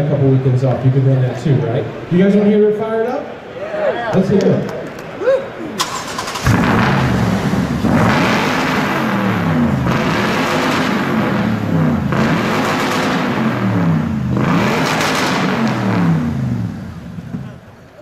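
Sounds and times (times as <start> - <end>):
truck engine revving: 5.8 - 17.6.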